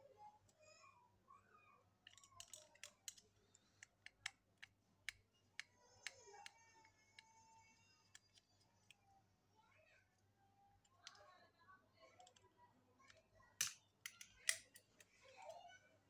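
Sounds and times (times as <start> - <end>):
small screwdriver clicks and taps: 2.1 - 7.4, 13.1 - 15.1.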